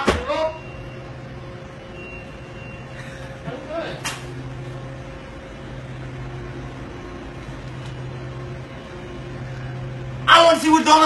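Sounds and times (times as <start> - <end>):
machinery hum and hiss: 0.0 - 11.0.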